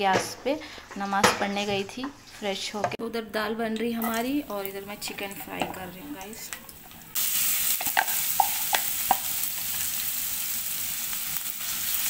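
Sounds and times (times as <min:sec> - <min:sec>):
onions sizzling in hot oil: 0:04.0 - 0:12.0.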